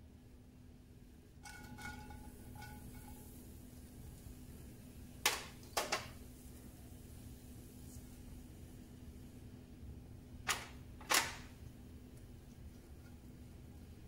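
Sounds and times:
dishes clattering: 1.4 - 3.4
metal cup clinking against pan: 1.4 - 3.4.

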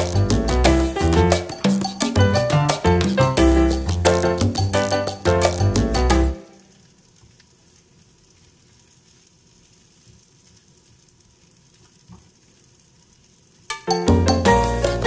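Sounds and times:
upbeat latin-style music: 0.0 - 6.4, 13.7 - 15.0.

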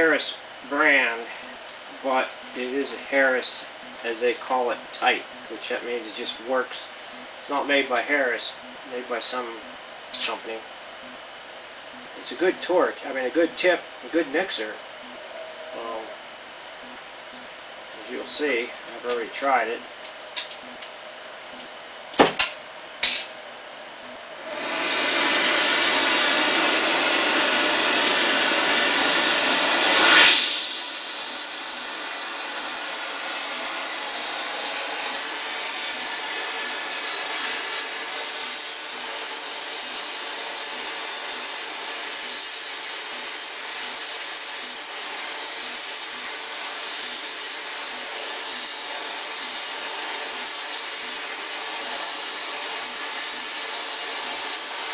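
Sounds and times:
gas torch hissing: 24.4 - 54.9.

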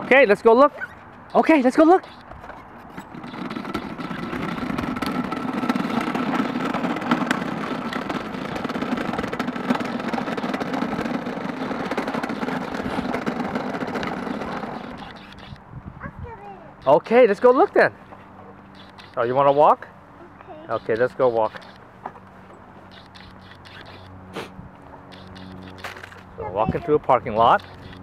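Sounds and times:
tricycle wheels rattling over asphalt: 0.0 - 15.6, 16.8 - 17.9, 18.7 - 19.8, 20.7 - 21.8, 22.9 - 24.1, 25.1 - 28.0.

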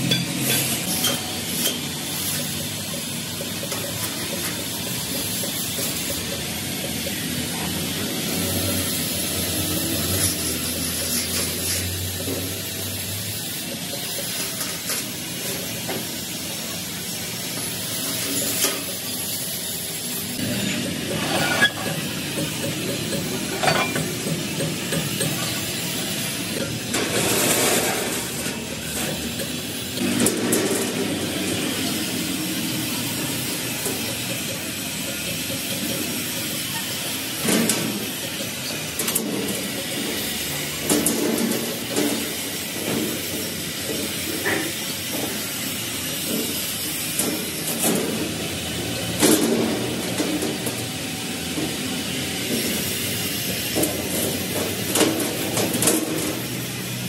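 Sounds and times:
workshop background hiss: 0.0 - 57.0.

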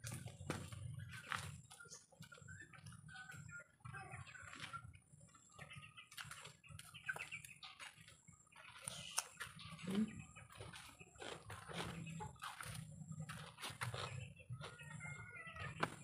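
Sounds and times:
chickens clucking: 0.0 - 16.0
chewing: 7.2 - 14.2.

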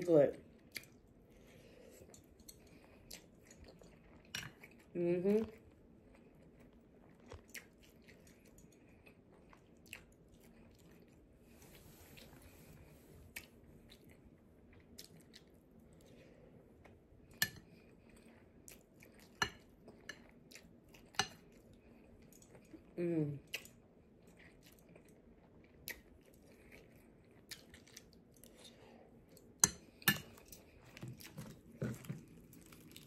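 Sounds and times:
person chewing rice: 0.5 - 4.9, 5.5 - 33.0.

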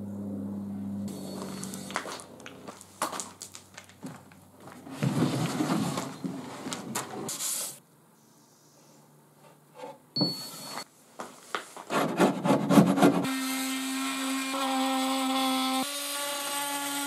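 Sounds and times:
cordless drill whine: 1.1 - 2.0.

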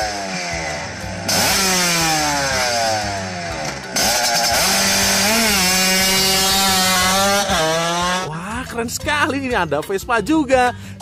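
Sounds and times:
scooter engine revving: 0.0 - 8.4.

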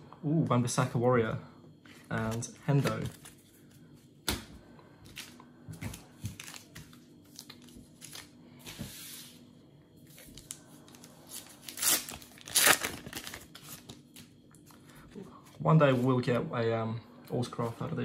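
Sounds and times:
plastic wrapper crinkling: 10.2 - 14.3
wrapper ripping: 11.3 - 14.0.

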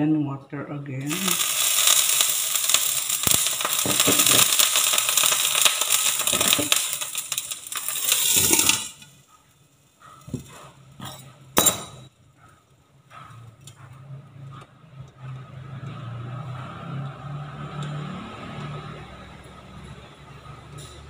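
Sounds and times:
water sizzling in hot pan: 1.1 - 9.2
glass lid clinking: 1.3 - 9.0, 11.0 - 12.1.

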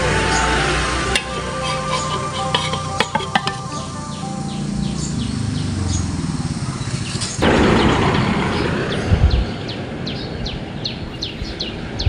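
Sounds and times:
loud hiss: 0.0 - 8.0
small bird chirping: 1.2 - 7.4.

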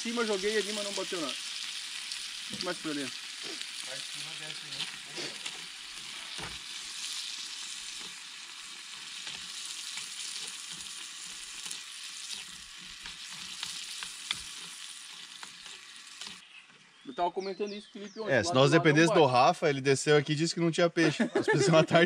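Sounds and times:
food sizzling in a frying pan: 0.0 - 16.4
spoon scraping a pan: 4.7 - 16.4.

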